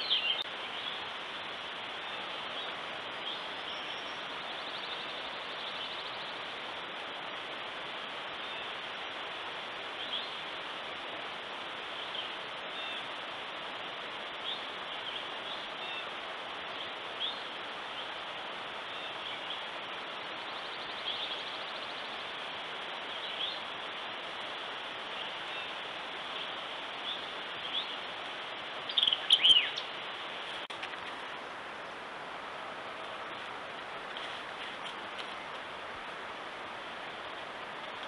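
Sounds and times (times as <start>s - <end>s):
birds chirping: 0.0s - 1.2s, 25.0s - 31.3s
steady hiss: 0.0s - 38.0s.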